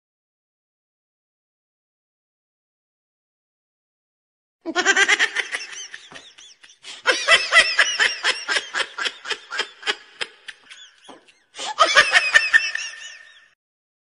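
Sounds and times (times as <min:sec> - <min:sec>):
people laughing hard: 0:04.7 - 0:13.6.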